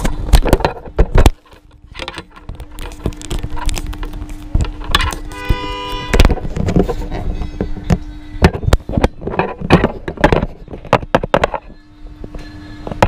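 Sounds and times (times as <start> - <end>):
short electronic tone: 5.3 - 6.2.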